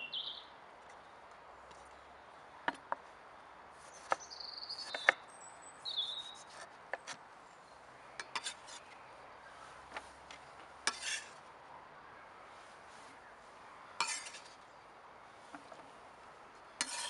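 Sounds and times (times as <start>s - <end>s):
knife scraping across board: 6.2s - 7.2s, 8.3s - 9.0s, 10.8s - 11.4s, 14.0s - 14.6s, 16.8s - 17.0s.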